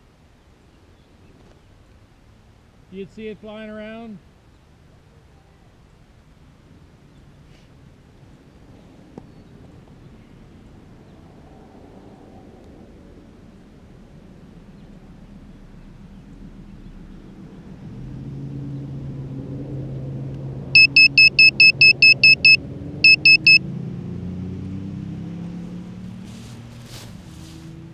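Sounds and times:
low engine hum: 11.0 - 27.9
loud high electronic beeps: 20.8 - 23.6.

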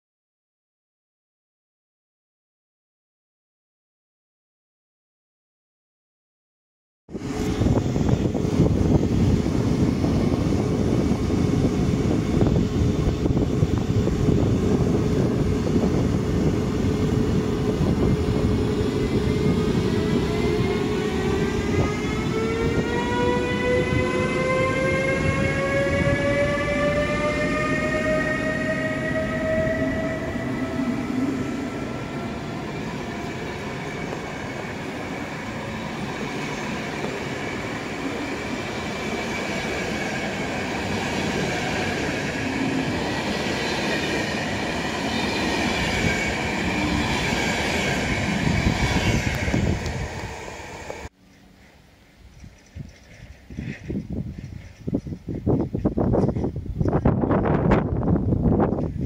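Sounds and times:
electric locomotive whine rising: 7.1 - 51.8.

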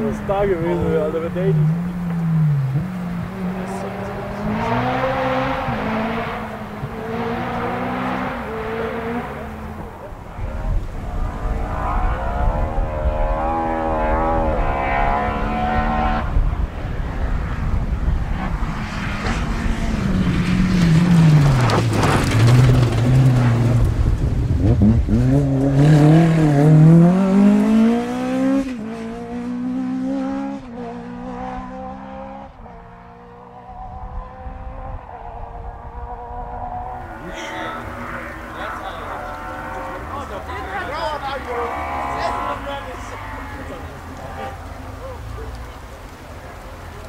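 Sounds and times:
rally car engine revving: 0.0 - 47.0
gravel spraying from tyres: 18.6 - 28.1, 37.0 - 47.0.

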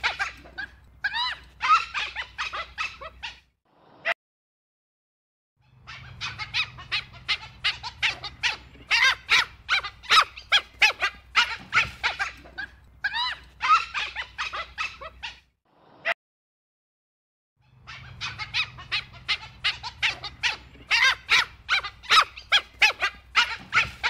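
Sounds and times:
wild dog yelping and whistling: 5.7 - 15.5, 17.7 - 24.0.

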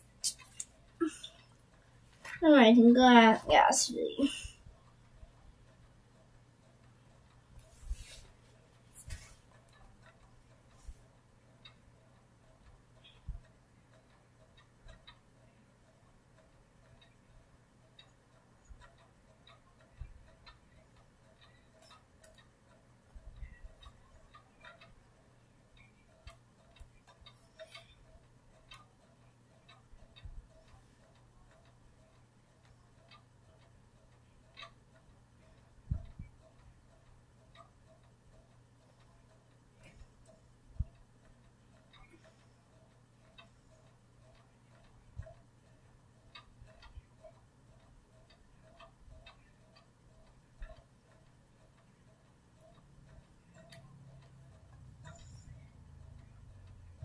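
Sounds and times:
faint ticking: 0.0 - 57.0.

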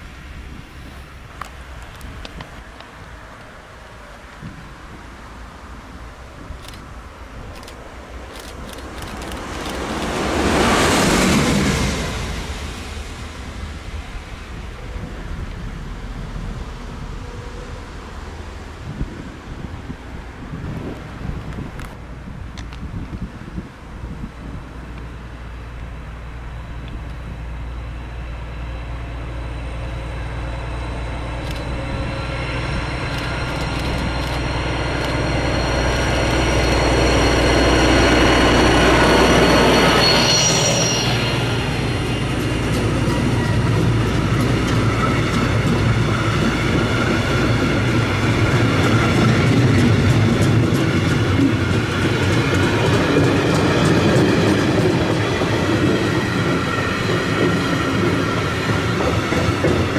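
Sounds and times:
locomotive rumble: 0.0 - 59.9
rails ringing: 29.5 - 59.9.

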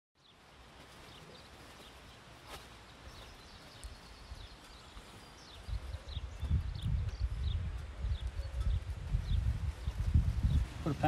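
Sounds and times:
small birds chirping: 0.2 - 11.0.

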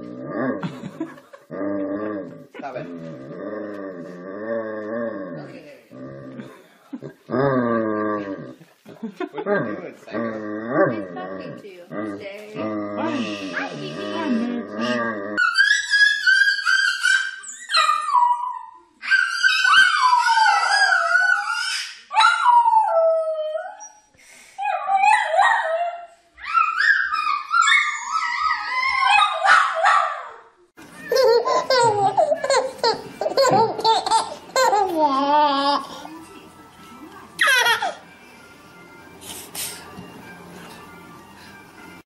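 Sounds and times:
puppy howling: 15.3 - 24.0, 24.7 - 30.4.

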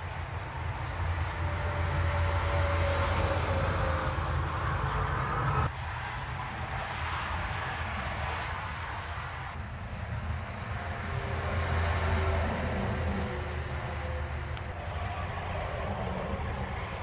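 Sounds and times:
low mechanical hum: 9.6 - 17.0.

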